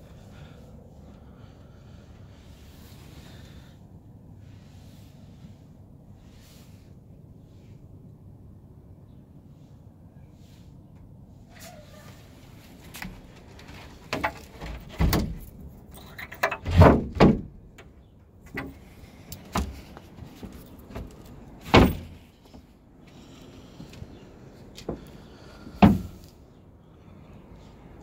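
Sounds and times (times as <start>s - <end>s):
footsteps on boat deck: 18.5s - 26.2s.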